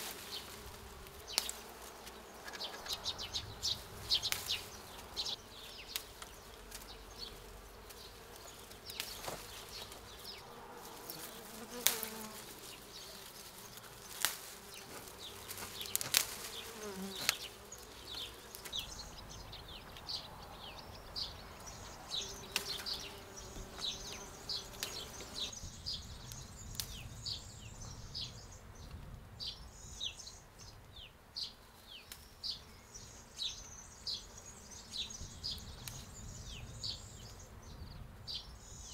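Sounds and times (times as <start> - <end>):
bees buzzing: 0.0 - 25.6
petals being picked clicks: 1.0 - 3.0, 4.2 - 5.2, 5.9 - 6.9, 7.8 - 10.1, 11.7 - 17.5
bird chirping: 1.3 - 10.6, 14.1 - 38.9.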